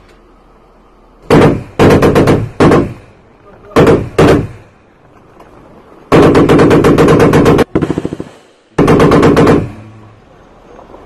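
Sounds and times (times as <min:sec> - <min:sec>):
machine gun firing in bursts: 0:01.3 - 0:03.0, 0:06.1 - 0:09.7.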